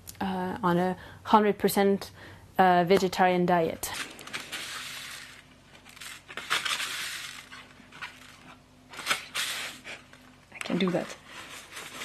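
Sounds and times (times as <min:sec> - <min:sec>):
paper seed packet crinkling: 0:03.9 - 0:12.0.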